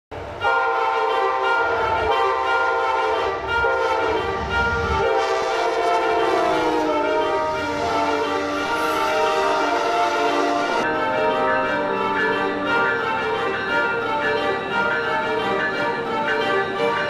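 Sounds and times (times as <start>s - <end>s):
passing train rumble: 0.1s - 17.0s
locomotive air horn blasts: 0.4s - 11.6s.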